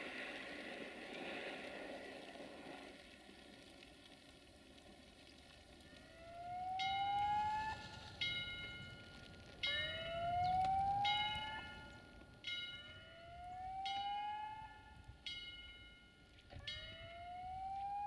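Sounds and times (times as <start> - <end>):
bell-like ringing tone: 6.6 - 18.0.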